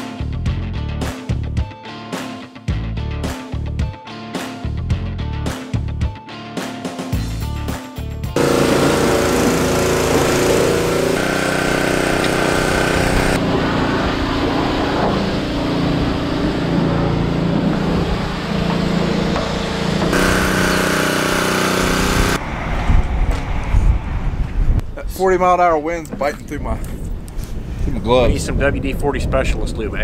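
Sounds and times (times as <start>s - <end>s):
engine running: 8.4s - 22.5s.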